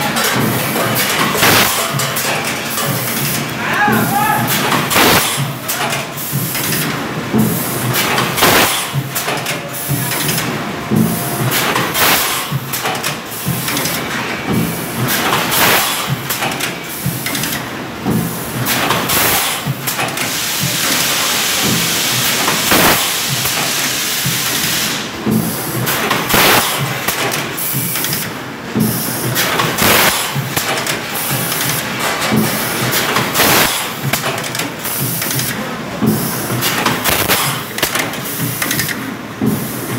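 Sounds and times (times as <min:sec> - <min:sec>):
pneumatic cylinders clacking: 0:00.0 - 0:39.9
compressed air hissing: 0:20.2 - 0:25.1.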